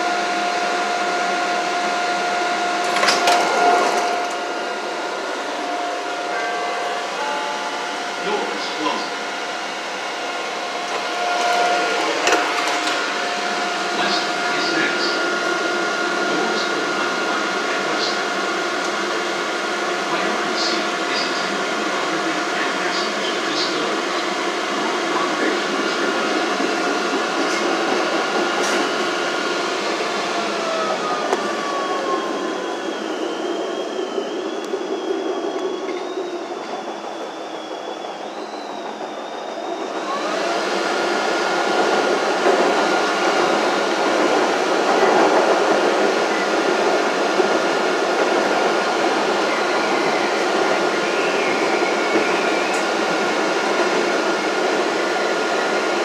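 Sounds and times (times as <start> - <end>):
steady whine: 0.0 - 56.0
train wheels and motors rumbling: 0.0 - 56.0
high wavering squeal: 10.5 - 15.8, 28.5 - 40.4.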